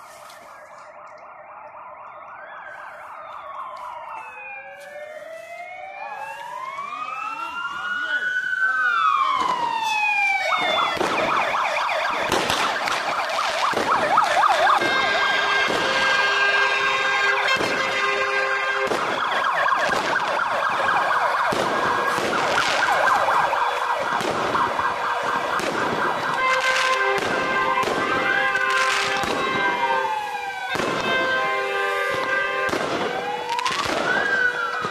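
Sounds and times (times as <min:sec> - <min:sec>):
fire engine sirens wailing: 0:00.0 - 0:34.9
sharp cracks: 0:09.4 - 0:16.2, 0:18.8 - 0:29.5.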